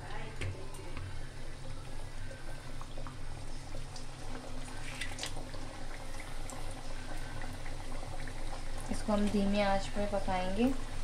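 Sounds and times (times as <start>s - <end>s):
dough frying in oil: 0.0s - 11.0s.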